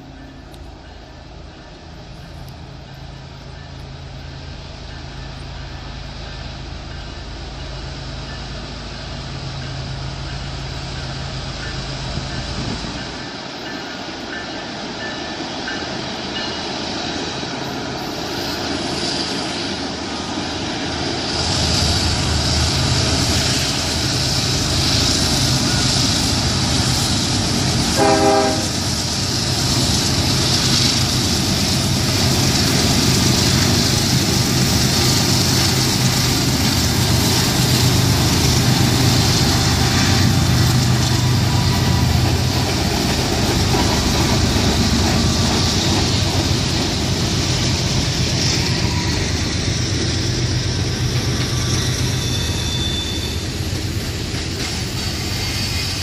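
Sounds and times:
diesel locomotive engine drone: 0:00.0 - 0:56.0
train rail noise: 0:00.0 - 0:56.0
train horn blast: 0:27.9 - 0:28.9, 0:38.3 - 0:42.2.

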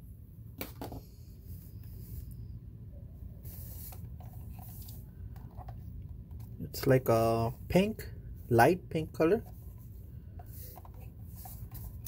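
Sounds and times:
steady low hum: 0:00.0 - 0:12.0
rubbing and scraping of plastic: 0:09.2 - 0:12.0.

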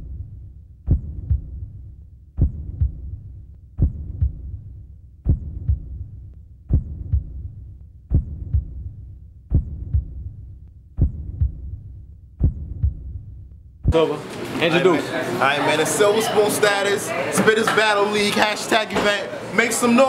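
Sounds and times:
deep double thump: 0:00.9 - 0:01.8, 0:02.4 - 0:03.2, 0:03.8 - 0:04.6, 0:05.2 - 0:06.1, 0:06.7 - 0:08.9, 0:09.5 - 0:10.4, 0:11.0 - 0:14.0.

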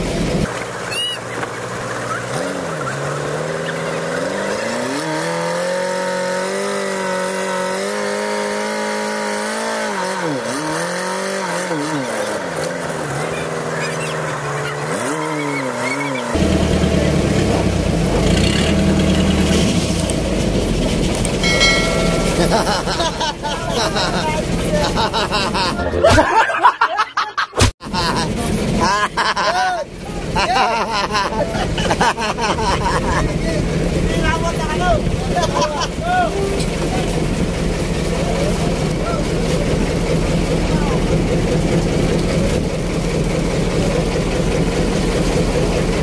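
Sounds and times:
boat engine running: 0:00.0 - 0:26.0, 0:28.0 - 0:46.0.

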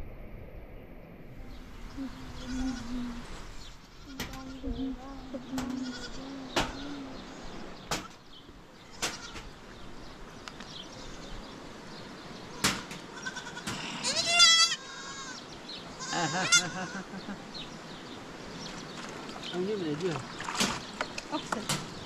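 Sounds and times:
sharp knocks: 0:07.9 - 0:08.2, 0:12.6 - 0:13.0
sheep or goats bleating: 0:13.1 - 0:17.1.

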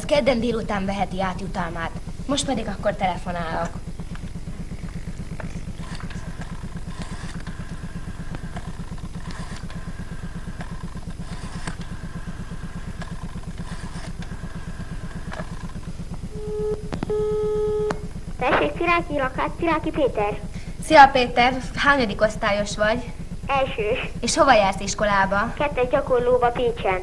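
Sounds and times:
fast-pulsing low line buzz: 0:00.0 - 0:27.0
telephone ringing tone: 0:16.3 - 0:18.2.

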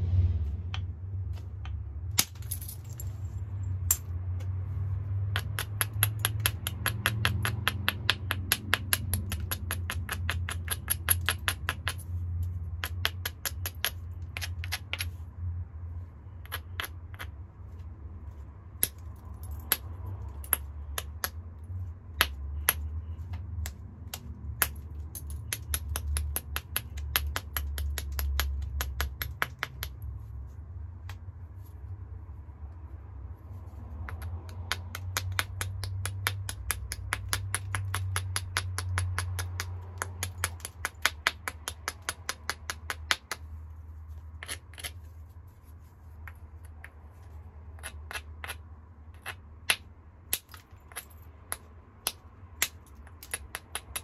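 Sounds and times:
stone clicking on stone: 0:05.3 - 0:15.2, 0:16.4 - 0:17.4, 0:18.8 - 0:21.4, 0:22.1 - 0:30.1, 0:34.0 - 0:43.5, 0:44.4 - 0:45.0, 0:47.7 - 0:54.0.

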